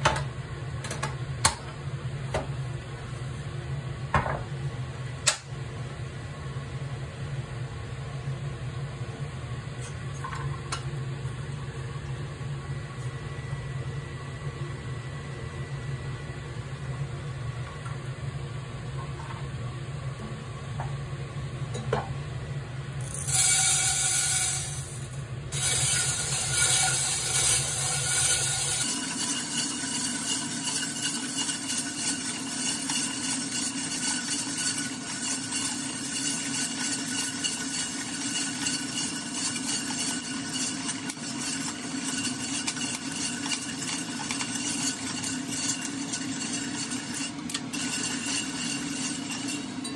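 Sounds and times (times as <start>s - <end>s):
gas stove burner hum: 0.0s - 49.9s
coffee beans pouring into pot: 23.0s - 47.2s
beans rattling in pot: 23.1s - 25.0s, 25.6s - 47.1s.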